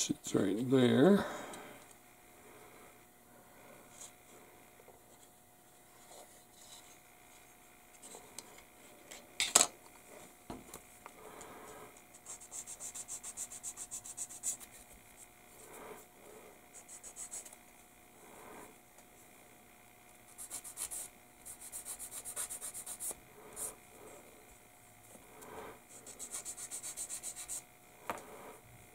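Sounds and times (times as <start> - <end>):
sanding stick scraping plastic: 12.2 - 14.9, 16.8 - 17.6, 20.3 - 23.7, 25.9 - 27.6.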